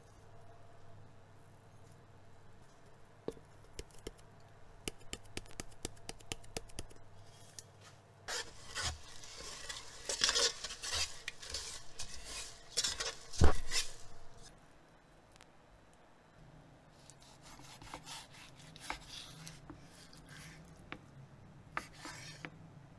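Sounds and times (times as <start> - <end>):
paddle stirring rice in pot: 8.3 - 14.4.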